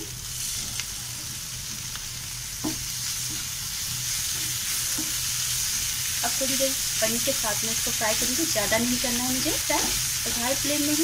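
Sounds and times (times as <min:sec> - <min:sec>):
food sizzling in a pan: 0:00.0 - 0:11.0
wooden spatula knocking on pan: 0:02.6 - 0:03.4, 0:04.9 - 0:05.2.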